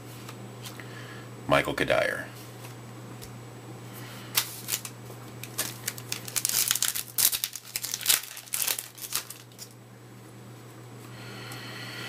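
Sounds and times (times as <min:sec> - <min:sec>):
wrapper crinkling and tearing: 0:04.4 - 0:09.8.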